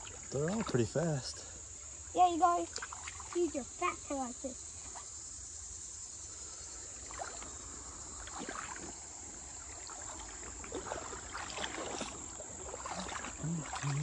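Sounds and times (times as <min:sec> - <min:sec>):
water sloshing and splashing: 0:00.0 - 0:01.4, 0:02.1 - 0:05.1, 0:07.0 - 0:14.0.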